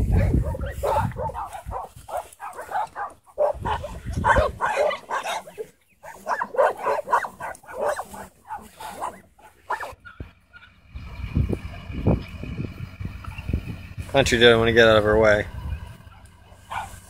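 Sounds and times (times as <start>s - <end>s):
dog barking excitedly: 0.0s - 10.2s, 16.6s - 17.0s.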